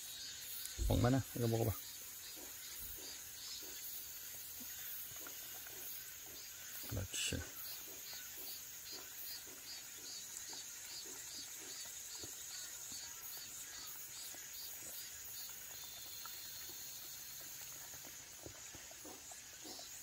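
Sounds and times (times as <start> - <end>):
high drone of insects: 0.0 - 20.0
dog licking and chewing: 7.5 - 20.0.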